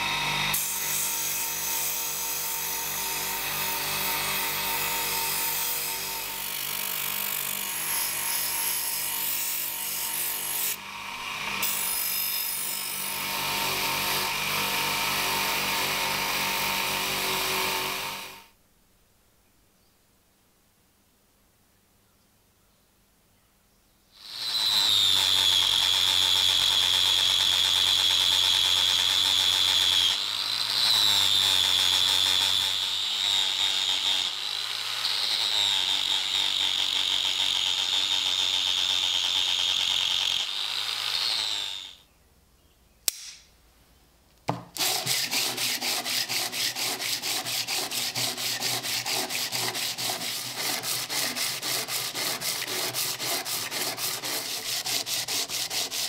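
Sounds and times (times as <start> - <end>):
angle grinder grinding steel: 0.0 - 16.0, 24.2 - 42.0, 44.8 - 56.0
click: 43.0 - 43.5
sanding by hand on sandpaper: 44.8 - 56.0.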